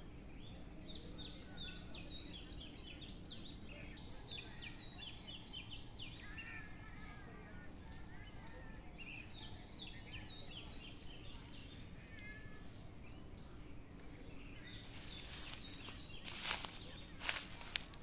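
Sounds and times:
low background hum: 0.0 - 18.0
rustle: 3.8 - 8.8, 10.2 - 18.0
high chirping calls: 8.2 - 13.7, 14.4 - 18.0.

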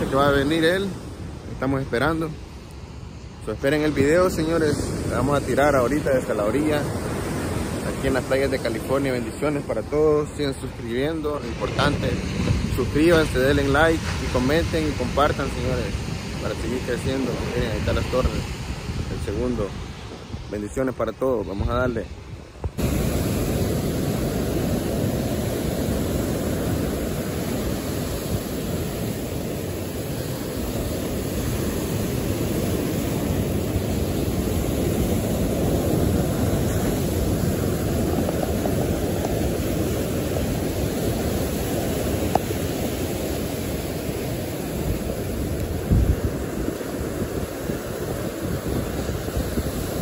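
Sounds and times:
ocean surf breaking on rocks: 0.0 - 50.0.

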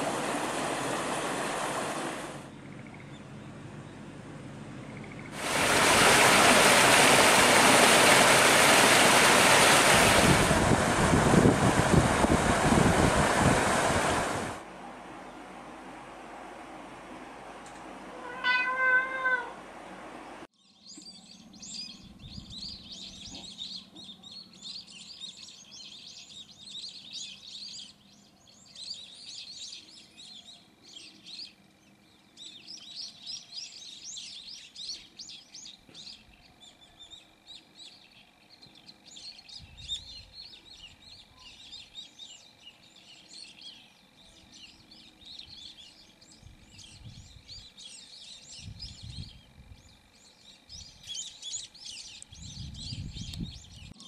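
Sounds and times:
small birds chirping: 2.6 - 4.0, 20.6 - 54.0
cat meowing: 18.2 - 19.6.

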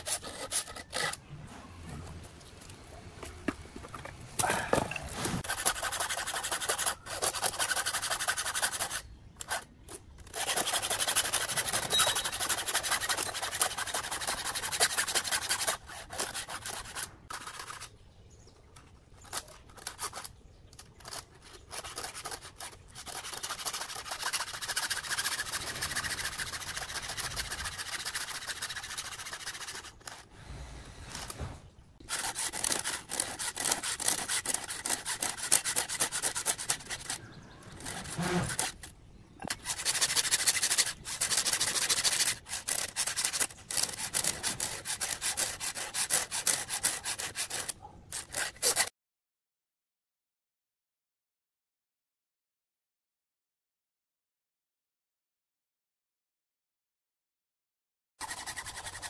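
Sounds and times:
file rasping on saw chain: 0.0 - 1.2, 5.4 - 17.9, 21.0 - 30.3, 32.0 - 48.9, 58.2 - 59.0.

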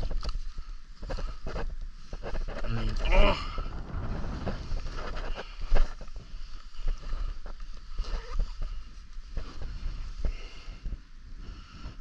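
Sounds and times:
rustling: 0.0 - 11.9
wind buffeting microphone: 2.4 - 12.0.

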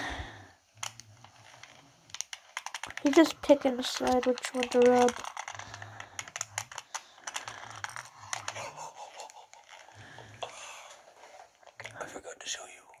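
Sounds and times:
quick scratches and clicks: 0.8 - 10.1
guns rubbed and handled: 0.8 - 11.8.

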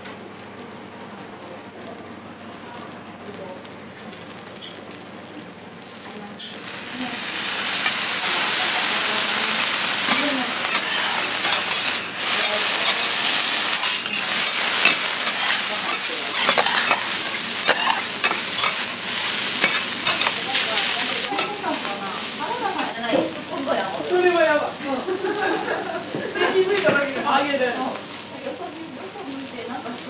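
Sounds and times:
food sizzling on iron griddle: 1.8 - 30.0
metal spatulas scraping griddle: 7.8 - 21.8.

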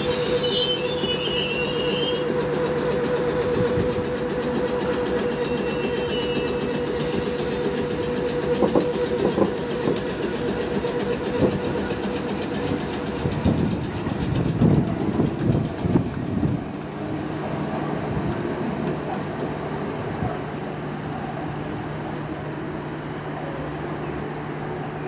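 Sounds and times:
train wheels clattering over rail joints: 0.0 - 17.0.

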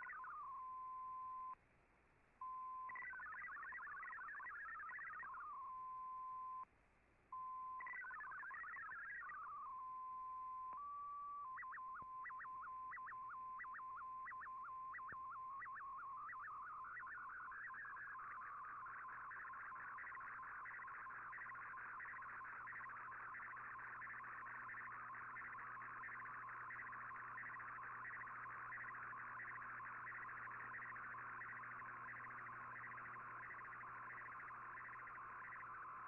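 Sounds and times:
short regular beeps: 0.0 - 1.6
warbling digital data tones: 0.0 - 1.6, 2.4 - 6.6, 7.4 - 36.0
dense fast-warbling tone: 11.5 - 36.0.

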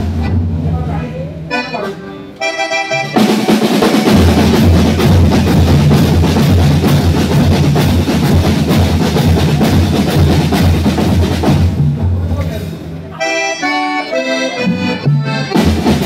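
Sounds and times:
marching percussion band: 2.7 - 12.9, 14.6 - 16.0.

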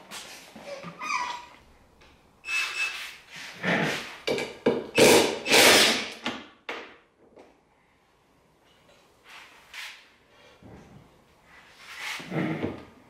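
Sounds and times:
impact driver bursts: 5.0 - 6.2.

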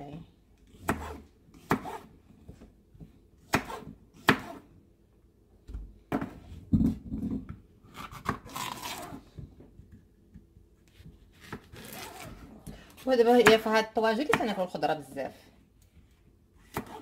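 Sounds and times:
knife chopping on wooden board: 0.8 - 2.1, 3.0 - 4.6, 11.0 - 12.2, 13.3 - 14.6, 16.7 - 17.0.

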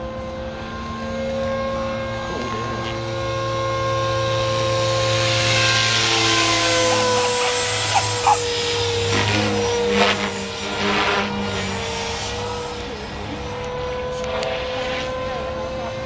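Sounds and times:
model helicopter motor whine: 0.0 - 16.0.

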